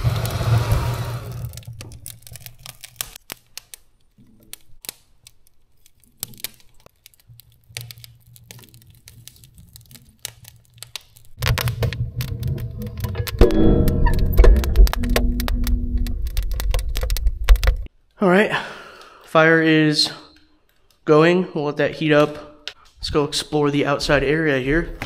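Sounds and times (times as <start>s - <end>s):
fire crackling in woodstove: 0.0s - 17.9s.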